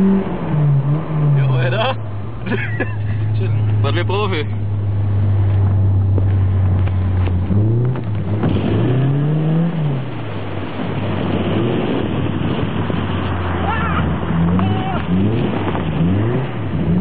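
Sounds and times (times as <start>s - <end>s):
car engine revving: 0.0s - 17.0s
tyres rushing on packed snow: 8.0s - 17.0s.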